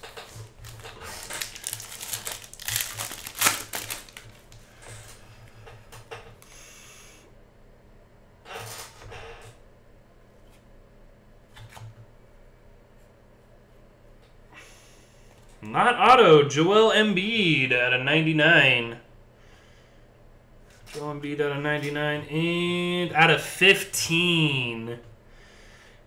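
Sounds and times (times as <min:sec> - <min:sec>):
foil pack tearing and crinkling: 0:00.4 - 0:04.6.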